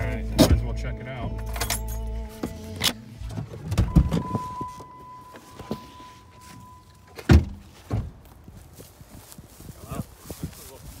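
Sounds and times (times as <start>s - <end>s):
car door opening: 1.3s - 8.2s
car door slamming: 3.4s - 4.8s, 7.1s - 8.2s
electronic warning tone: 3.9s - 7.2s.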